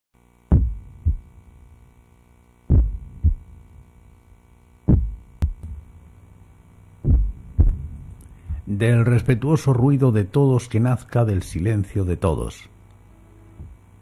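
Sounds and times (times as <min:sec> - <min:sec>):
faint steady hum: 0:00.2 - 0:14.0
heartbeat thumps: 0:00.5 - 0:01.4, 0:02.7 - 0:03.7, 0:04.8 - 0:06.1, 0:06.9 - 0:08.8, 0:13.6 - 0:13.8.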